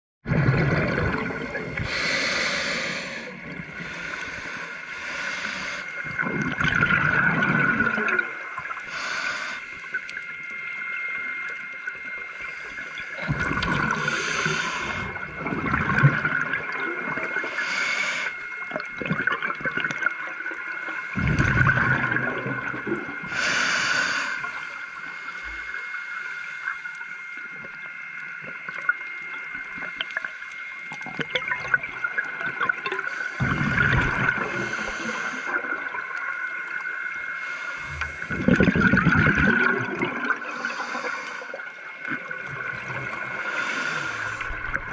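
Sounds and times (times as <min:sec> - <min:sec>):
exhaled bubbles gurgling: 0:00.2 - 0:25.7, 0:27.5 - 0:44.9
faint high whine: 0:00.3 - 0:44.9
regulator hissing inhalations: 0:01.8 - 0:06.0, 0:08.8 - 0:10.0, 0:13.9 - 0:15.2, 0:17.3 - 0:18.5, 0:23.3 - 0:27.0, 0:34.4 - 0:35.6, 0:37.3 - 0:38.3, 0:40.4 - 0:41.7, 0:43.3 - 0:44.6.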